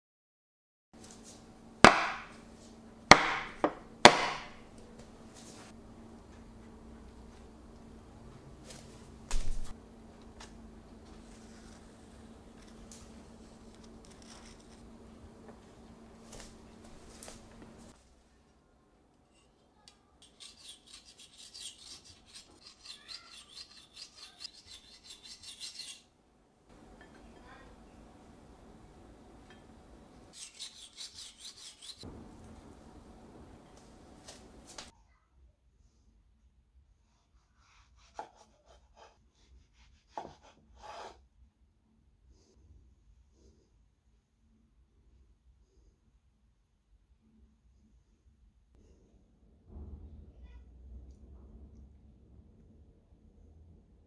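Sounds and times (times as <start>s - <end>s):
bread knife sawing through cake: 20.4s - 26.0s, 30.3s - 32.1s, 37.6s - 41.2s.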